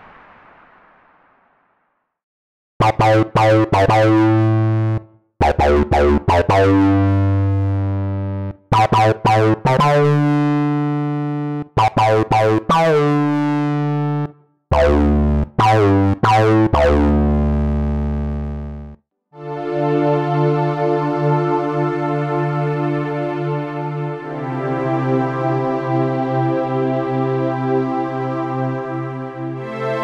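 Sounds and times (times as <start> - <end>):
synthesizer bass phrase: 2.8 - 19.0.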